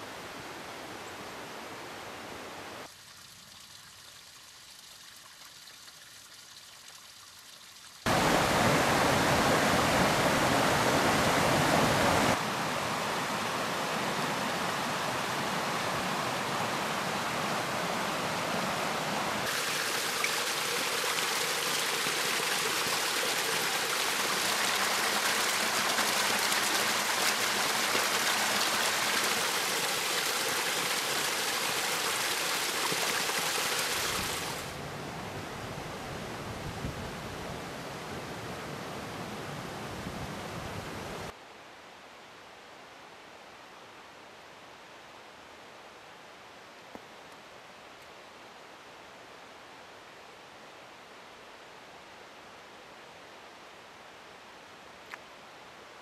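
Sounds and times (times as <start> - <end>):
stream rushing over rocks: 8.0 - 41.4.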